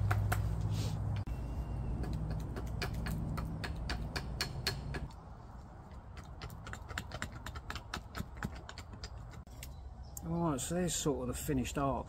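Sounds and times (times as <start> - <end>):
knife carving wood: 2.0 - 5.1.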